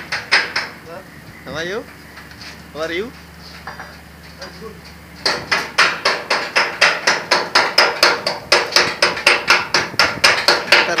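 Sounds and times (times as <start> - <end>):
hammer blows on steel door frame: 5.2 - 11.0.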